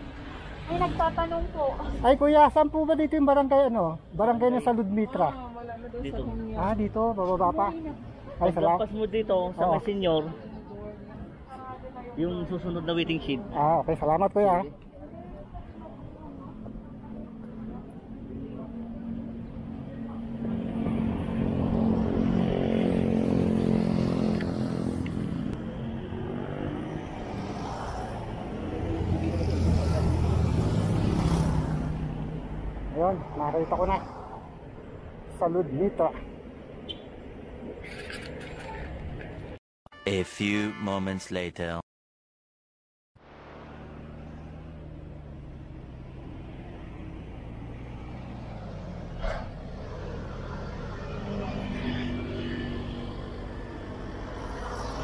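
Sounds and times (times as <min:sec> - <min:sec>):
vehicle engines passing: 0:00.0 - 0:39.6, 0:43.2 - 0:55.0
road noise: 0:00.0 - 0:41.8, 0:43.2 - 0:55.0
vehicle engine humming: 0:43.2 - 0:55.0.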